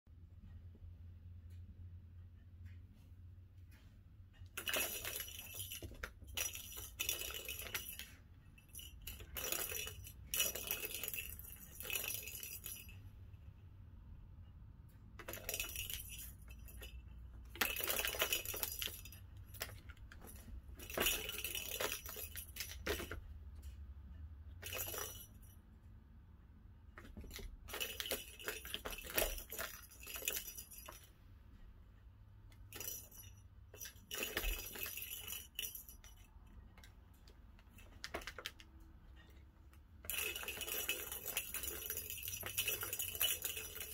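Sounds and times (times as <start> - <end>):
balls rattling in plastic toy tracks: 4.4 - 13.1, 15.1 - 23.8, 24.5 - 25.5, 27.0 - 31.1, 32.6 - 39.4, 40.0 - 43.9.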